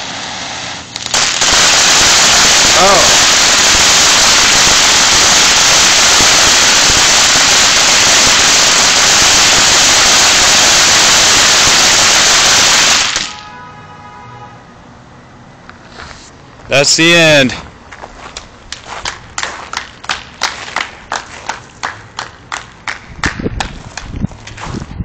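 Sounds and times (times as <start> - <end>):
firework fountain hissing: 0.0 - 13.5.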